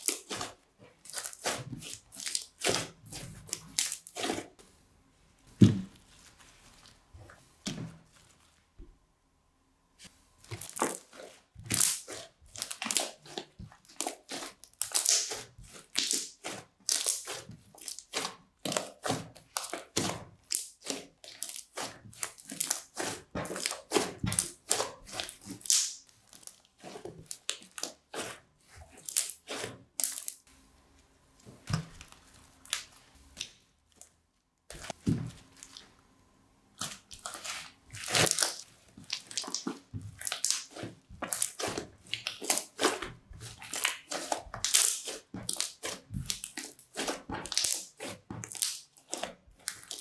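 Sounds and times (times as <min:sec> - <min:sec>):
crunchy slime crackling pops: 0:10.4 - 0:28.2, 0:28.9 - 0:30.5, 0:36.8 - 0:50.0.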